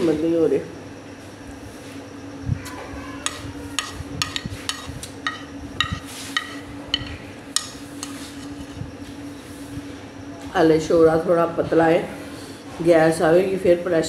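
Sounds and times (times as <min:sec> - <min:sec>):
steady low hum: 0:00.0 - 0:14.0
spoon clinking on a plate: 0:03.3 - 0:08.2.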